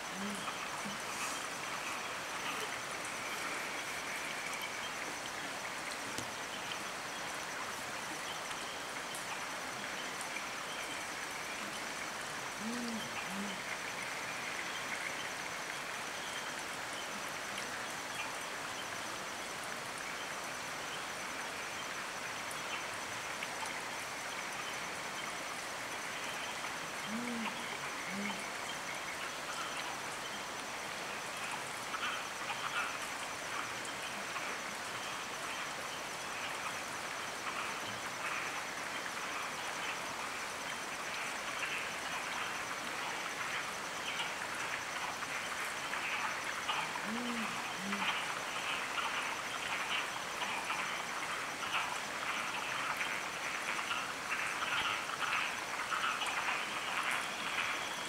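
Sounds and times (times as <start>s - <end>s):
owl hooting: 27.1s - 28.4s, 46.7s - 48.2s.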